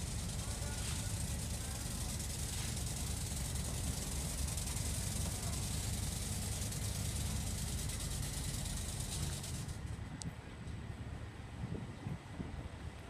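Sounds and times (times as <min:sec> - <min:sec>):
hiss: 0:00.0 - 0:09.9
low uneven rumble: 0:00.0 - 0:13.0.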